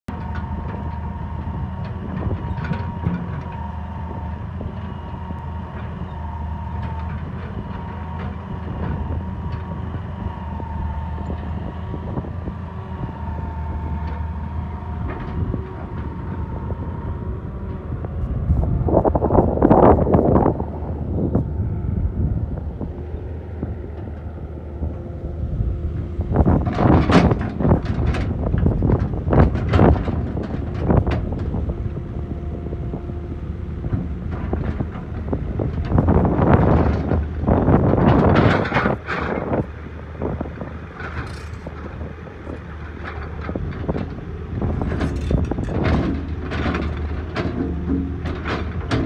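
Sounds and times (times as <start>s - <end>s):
excavator diesel engine running: 0.1s - 49.0s
high-pitched whine: 18.0s - 23.3s.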